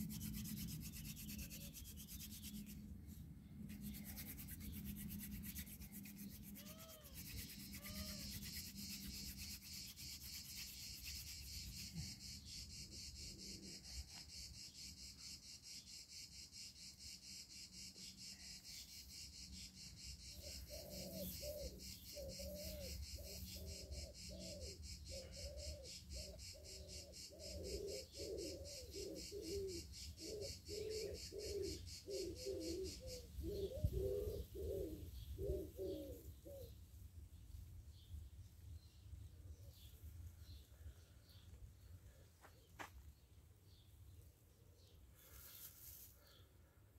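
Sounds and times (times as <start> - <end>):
high insect drone: 6.3 - 33.2
dove cooing: 20.4 - 36.7.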